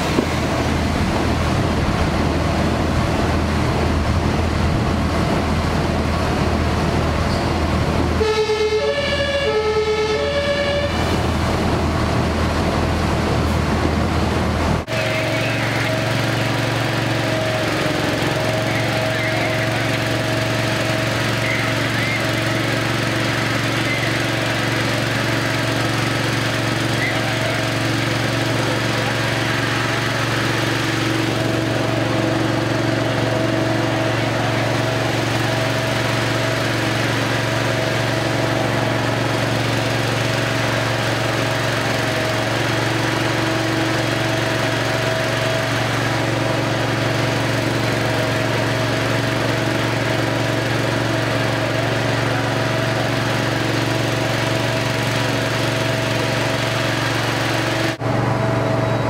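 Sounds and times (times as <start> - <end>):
two-tone siren: 8.2 - 11.0
small petrol engine running: 14.9 - 59.0.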